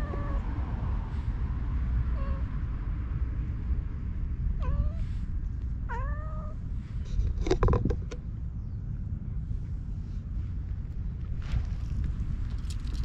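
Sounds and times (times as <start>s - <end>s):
cat meowing: 0.0s - 0.5s, 2.1s - 2.5s, 4.6s - 5.1s, 5.9s - 6.6s
steady low rumble: 0.0s - 13.0s.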